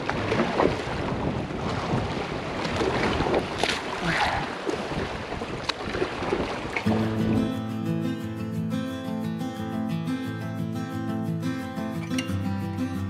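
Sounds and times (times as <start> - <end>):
water lapping against rocks: 0.0 - 7.2
wind buffeting microphone: 0.0 - 7.5.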